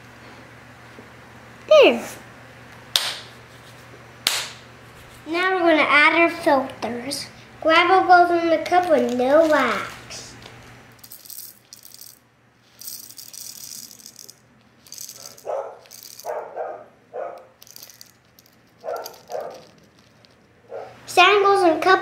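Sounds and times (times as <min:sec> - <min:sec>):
gravel rattling in plastic cup: 0:11.0 - 0:16.4, 0:17.6 - 0:20.5
plastic bag rustling: 0:17.7 - 0:20.6.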